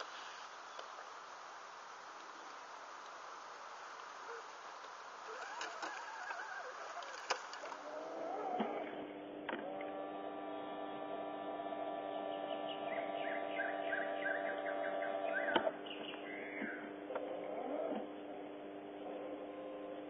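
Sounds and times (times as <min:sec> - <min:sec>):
outdoor rustling: 0:00.0 - 0:20.0
electric motor whining: 0:05.2 - 0:20.0.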